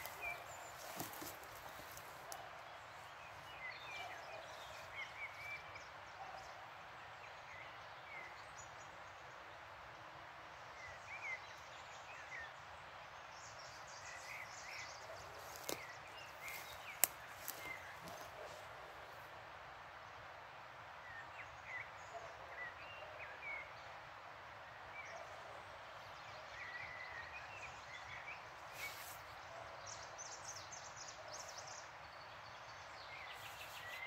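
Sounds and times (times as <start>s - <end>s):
birds chirping: 0.0s - 6.4s.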